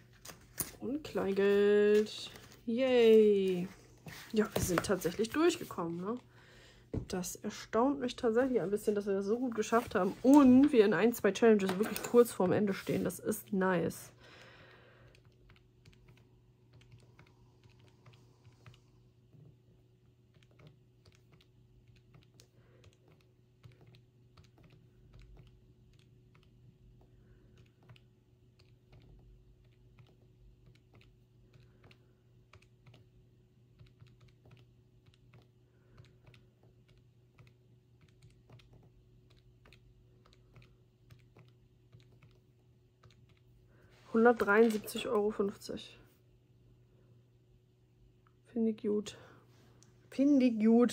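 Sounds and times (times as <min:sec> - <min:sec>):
low steady hum: 0:00.0 - 0:50.9
keyboard typing clicks: 0:33.7 - 0:42.4.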